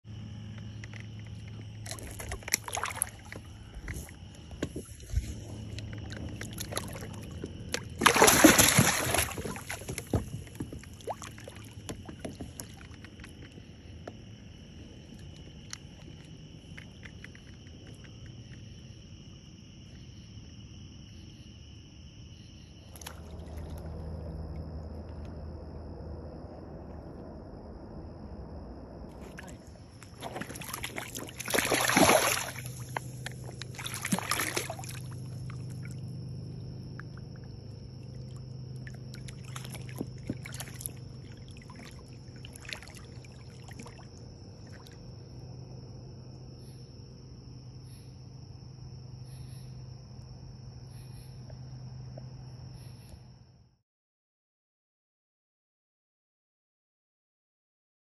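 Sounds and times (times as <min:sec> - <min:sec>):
quiet water noise: 0:00.1 - 0:48.2
fish splashing in water: 0:00.7 - 0:13.6, 0:29.2 - 0:45.1.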